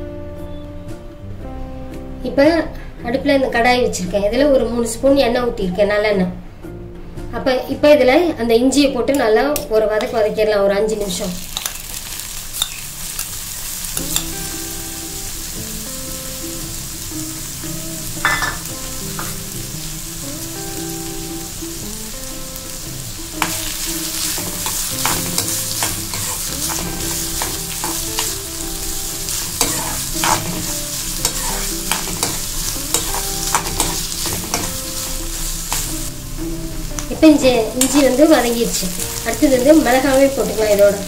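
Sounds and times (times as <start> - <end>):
ginger sizzling in oil: 11.0 - 41.0
spoon scraping and clicking on pan: 11.6 - 12.0, 12.6 - 13.3, 31.2 - 34.8.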